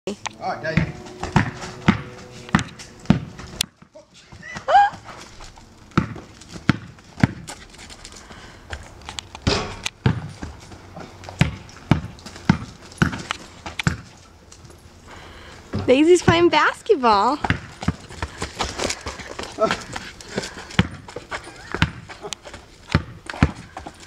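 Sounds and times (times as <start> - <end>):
basketball bouncing on hard court: 0.7 - 3.9, 5.9 - 7.5, 9.4 - 10.6, 11.3 - 14.1, 15.7 - 16.5, 17.2 - 18.3, 20.8 - 21.1, 21.7 - 22.1, 22.9 - 23.9.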